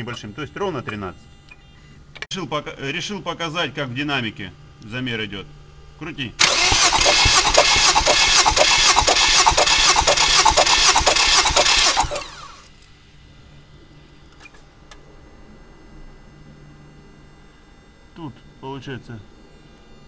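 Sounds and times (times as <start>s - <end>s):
faint hum: 0.0s - 6.5s, 12.0s - 20.0s
starter motor cranking engine: 6.4s - 12.7s.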